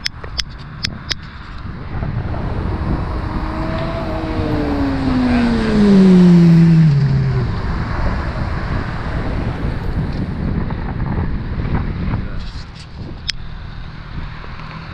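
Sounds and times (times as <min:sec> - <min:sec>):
wind and road noise: 0:00.0 - 0:14.9
motorcycle passing at speed: 0:01.0 - 0:12.3.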